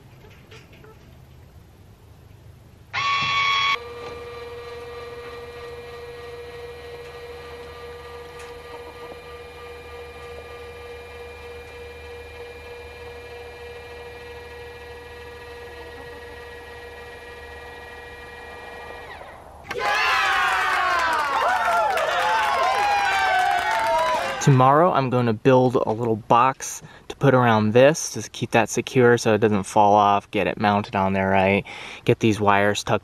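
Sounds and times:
actuator motor whining: 2.9s - 24.6s.

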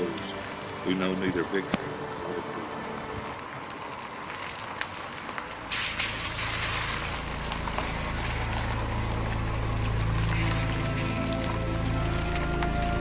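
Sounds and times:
tyres hissing on wet road: 0.0s - 13.0s
low engine hum: 6.1s - 13.0s.

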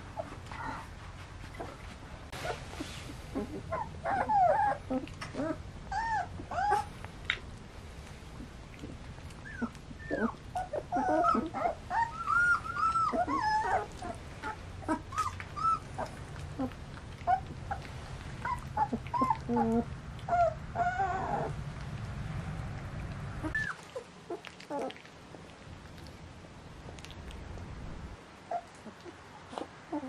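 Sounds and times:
puppies whimpering: 0.2s - 0.9s, 2.4s - 7.0s, 8.8s - 21.6s, 23.4s - 25.0s, 28.5s - 30.0s.

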